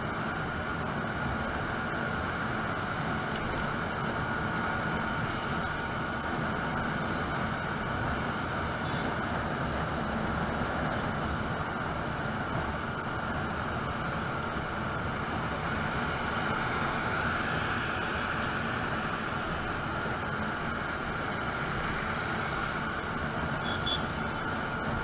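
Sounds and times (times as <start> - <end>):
motorbike road noise: 0.0 - 25.0.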